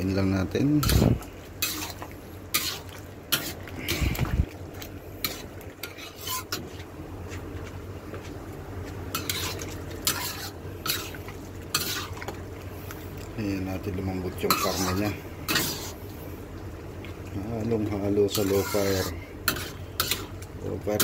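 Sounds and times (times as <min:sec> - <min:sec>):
low steady hum: 0:00.0 - 0:21.0
metal spatula scraping a wok: 0:00.8 - 0:04.1, 0:05.2 - 0:06.8, 0:09.1 - 0:12.2, 0:14.4 - 0:16.0, 0:18.3 - 0:20.3.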